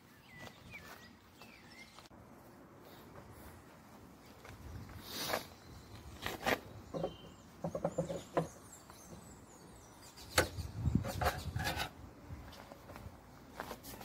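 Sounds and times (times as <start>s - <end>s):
bird chirps: 0.0s - 2.1s, 4.6s - 11.6s.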